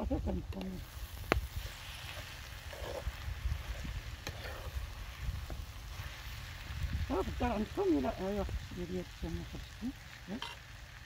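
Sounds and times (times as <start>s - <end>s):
food sizzling: 0.0s - 11.0s
spoon stirring beans: 1.6s - 5.6s.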